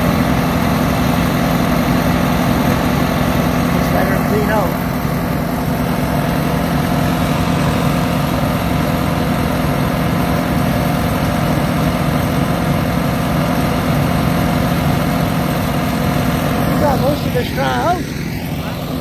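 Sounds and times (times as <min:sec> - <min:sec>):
combine harvester running: 0:00.0 - 0:19.0.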